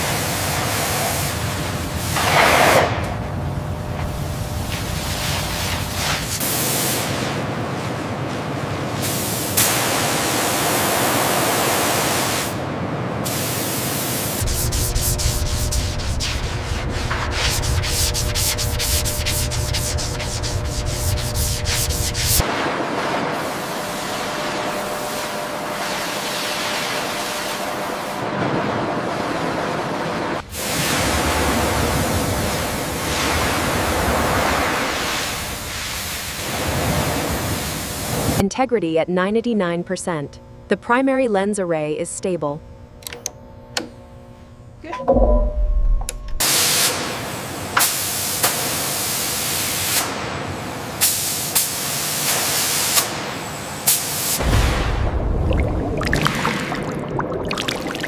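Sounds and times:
pressure washer spraying metal: 0:04.7 - 0:07.4, 0:09.0 - 0:12.6, 0:13.3 - 0:22.4, 0:30.5 - 0:38.3, 0:51.0 - 0:54.4
cleaner spray hissing: 0:13.3 - 0:22.4
cloth rubbing on metal: 0:14.4 - 0:22.4.

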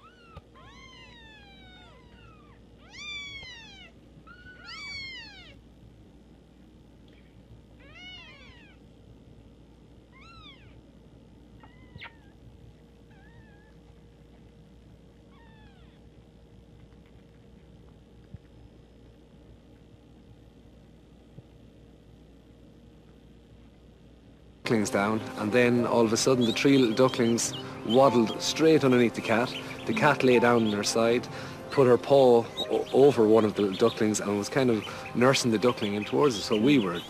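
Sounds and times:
kitten mewing: 0:00.0 - 0:05.6.

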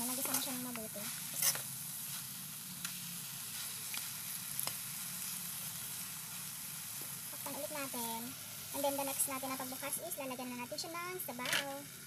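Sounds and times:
spatula scraping a pan: 0:00.0 - 0:02.3
food sizzling in a wok: 0:00.0 - 0:12.0.

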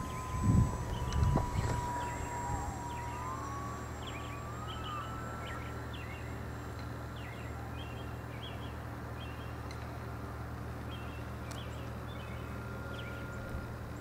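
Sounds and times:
steady low rumble: 0:00.0 - 0:07.8
birds chirping: 0:00.0 - 0:09.6
distant electric motor whining: 0:00.0 - 0:14.0.

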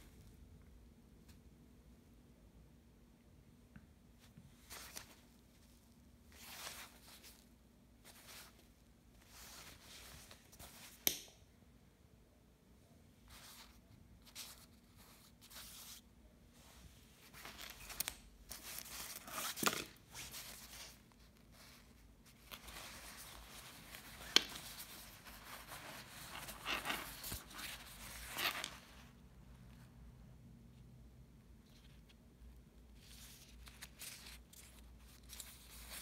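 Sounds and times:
nylon jacket rustling: 0:17.2 - 0:29.0.

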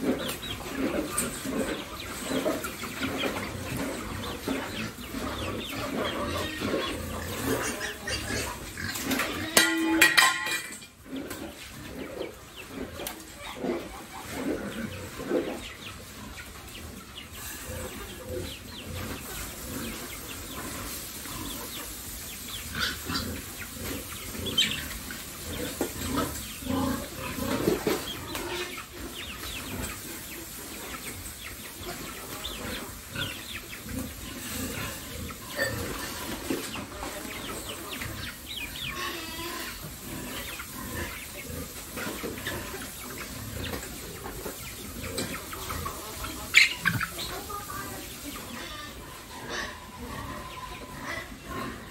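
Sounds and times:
pig squealing: 0:38.8 - 0:41.6.

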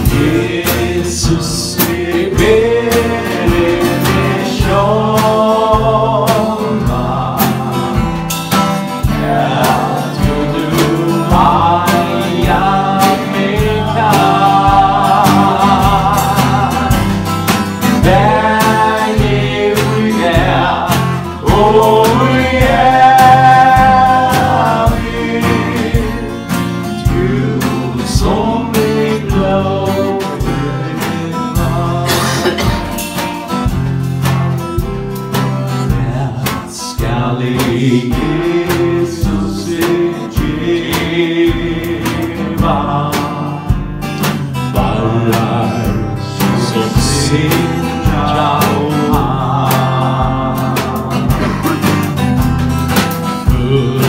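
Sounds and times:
man singing: 0:00.0 - 0:33.8, 0:35.7 - 0:52.5, 0:53.2 - 0:54.0
acoustic guitar strumming: 0:00.0 - 0:54.0.

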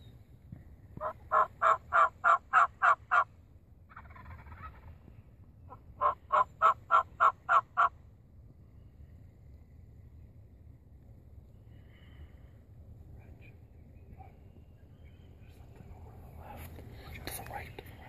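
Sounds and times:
turkey calling: 0:01.0 - 0:03.3, 0:03.9 - 0:05.0, 0:05.7 - 0:08.0
soft scratchy sound: 0:15.4 - 0:18.0.

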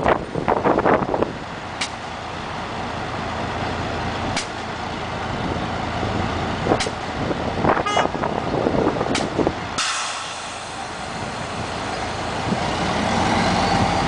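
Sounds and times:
bus diesel engine humming: 0:00.0 - 0:14.0
street noise: 0:00.0 - 0:14.0
brief sharp clicks or hisses: 0:09.8 - 0:10.7.

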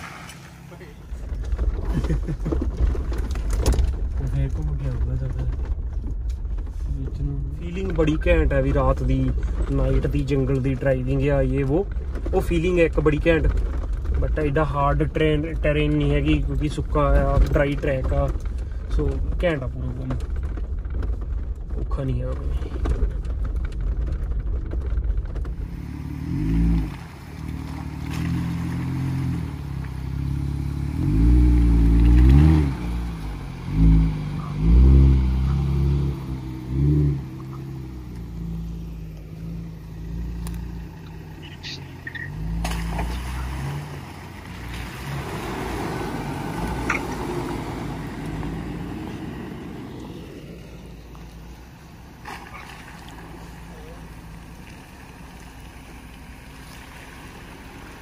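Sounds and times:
engine revving: 0:25.5 - 0:51.2.

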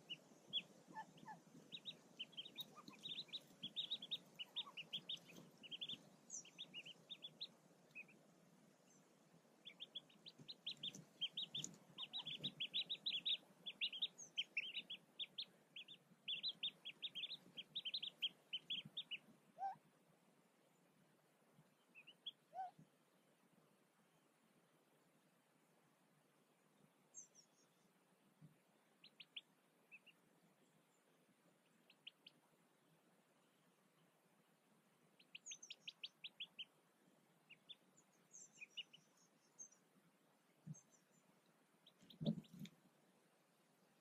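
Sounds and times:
ducklings peeping: 0:00.0 - 0:19.8, 0:21.8 - 0:22.8, 0:28.5 - 0:30.2, 0:31.6 - 0:32.5, 0:35.2 - 0:36.8, 0:37.4 - 0:39.8, 0:41.8 - 0:42.8.

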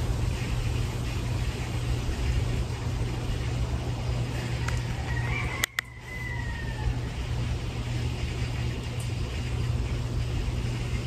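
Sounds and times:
steady low rumble: 0:00.0 - 0:11.0
rooster crowing: 0:04.2 - 0:07.5
sharp clicks: 0:05.6 - 0:05.9.

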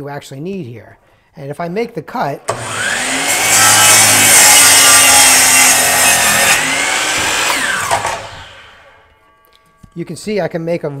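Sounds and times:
miter saw cutting wood: 0:02.4 - 0:09.1
saw motor winding down: 0:02.5 - 0:09.0.

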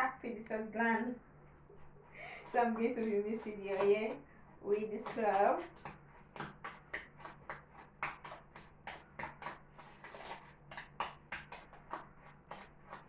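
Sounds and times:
spoon scraping gritty scrub: 0:02.4 - 0:05.8.

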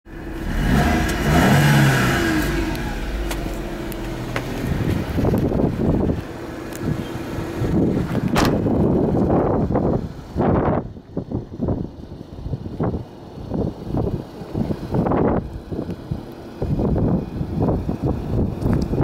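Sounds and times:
truck engine revving: 0:00.1 - 0:10.5
wind noise on microphone: 0:00.5 - 0:19.0.

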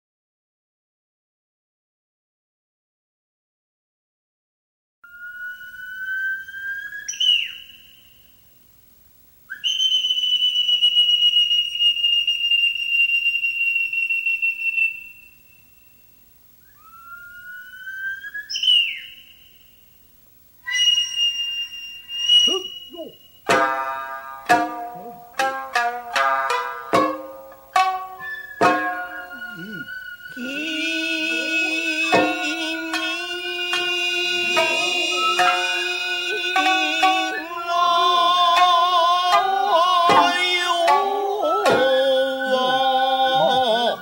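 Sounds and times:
bamboo flute playing: 0:05.0 - 0:07.8, 0:09.5 - 0:15.4, 0:16.6 - 0:19.2, 0:20.6 - 0:44.0
plucked shamisen strings: 0:23.5 - 0:42.7.

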